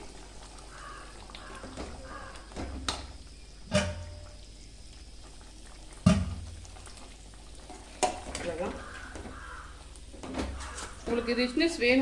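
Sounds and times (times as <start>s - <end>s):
metal ladle knocks: 3.7s - 4.2s.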